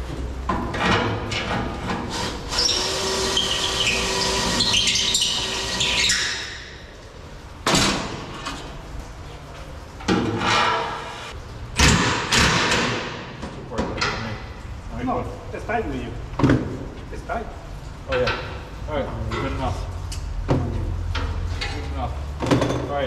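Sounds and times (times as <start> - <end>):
cordless drill boring into steel: 2.2 - 6.0.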